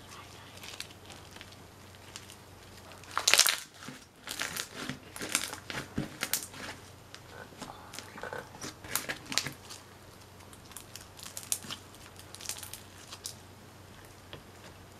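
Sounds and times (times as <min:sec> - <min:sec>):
crunchy slime crackling: 0:00.0 - 0:14.9.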